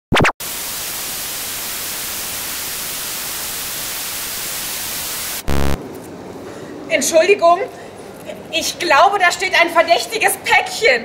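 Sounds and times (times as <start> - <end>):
loud buzzing tone: 0.2 - 5.8.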